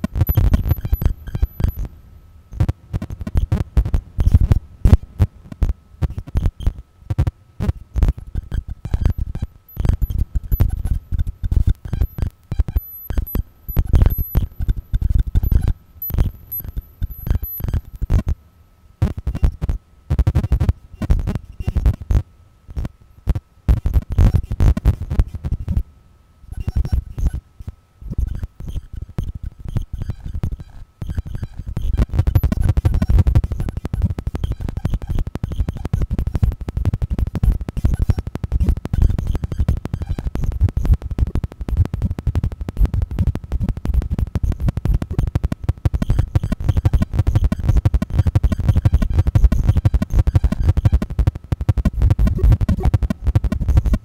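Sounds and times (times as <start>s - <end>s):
crackling clicks: 0.0s - 1.9s, 2.5s - 18.4s, 26.6s - 54.0s
faint steady high tone: 12.8s - 14.8s, 15.4s - 17.9s.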